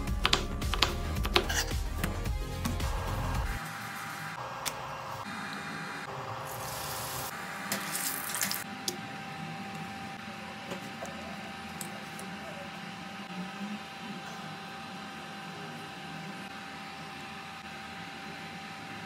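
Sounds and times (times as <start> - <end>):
sizzling in frying pan: 6.5 - 8.6.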